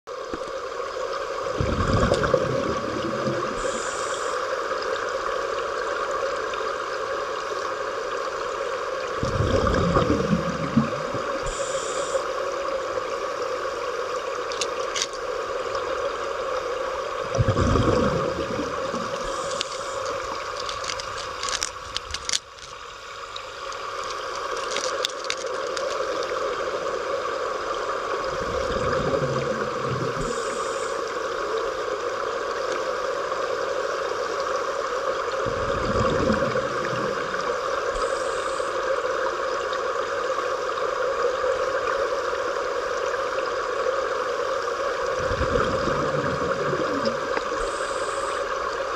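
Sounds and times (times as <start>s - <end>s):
exhaled bubbles rumbling: 0.1s - 6.7s, 7.4s - 48.9s
underwater hum: 0.1s - 48.9s
regulator high hiss: 3.5s - 4.8s, 11.3s - 12.6s, 19.1s - 20.5s, 30.1s - 31.4s, 37.4s - 39.1s, 47.4s - 48.9s.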